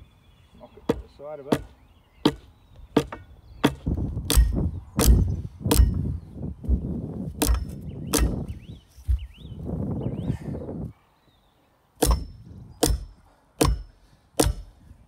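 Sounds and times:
spade striking ground: 3.0 - 6.1, 7.4 - 8.5, 12.0 - 14.7.

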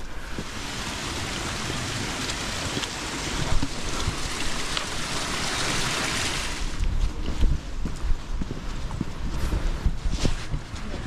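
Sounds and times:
stream rushing from pipe: 0.0 - 6.9.

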